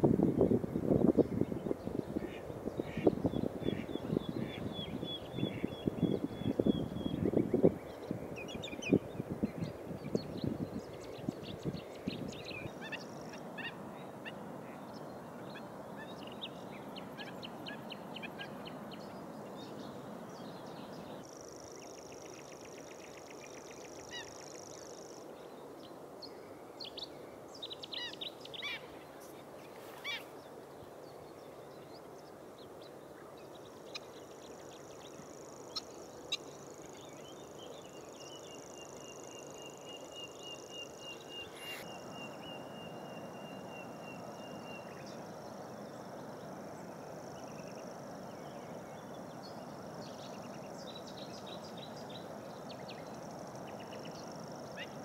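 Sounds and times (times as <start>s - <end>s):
birds chirping and trilling: 40.5s - 46.0s.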